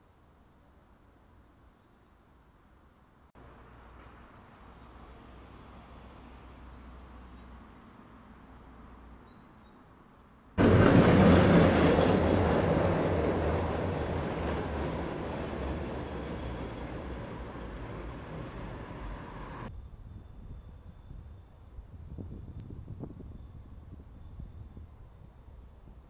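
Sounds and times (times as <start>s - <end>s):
tram rumbling along tracks: 10.6s - 19.7s.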